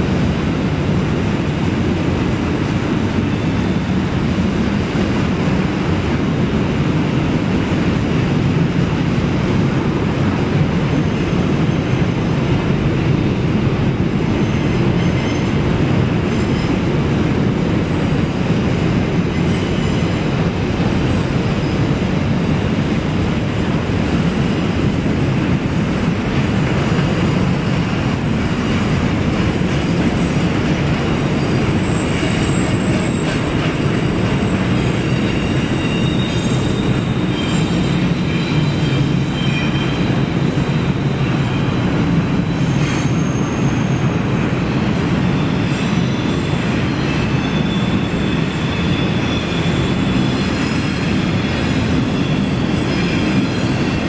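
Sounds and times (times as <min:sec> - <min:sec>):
rumble of train wheels on rail: 0:00.0 - 0:54.0
high wheel squeal: 0:19.2 - 0:20.5, 0:26.5 - 0:54.0.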